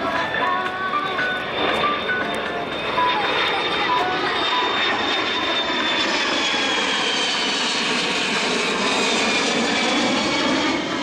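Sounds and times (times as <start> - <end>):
jet aircraft roar and whine: 0.0 - 11.0.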